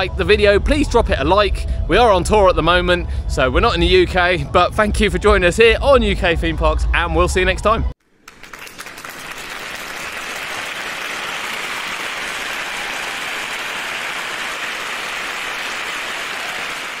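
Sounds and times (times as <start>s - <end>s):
crowd applauding: 8.1s - 17.0s.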